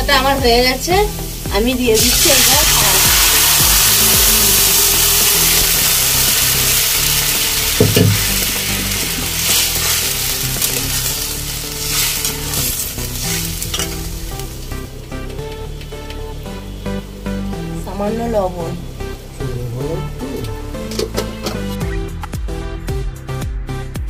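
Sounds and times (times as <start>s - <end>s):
meat sizzling in hot oil: 0.1s - 20.8s
metal spatula stirring: 7.8s - 14.1s.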